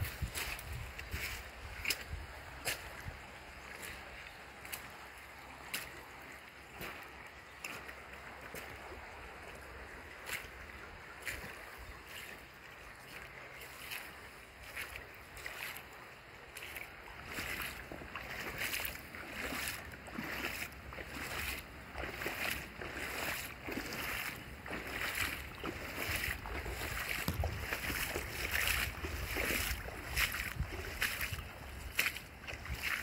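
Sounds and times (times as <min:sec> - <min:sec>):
flooded creek rushing: 0:00.0 - 0:33.0.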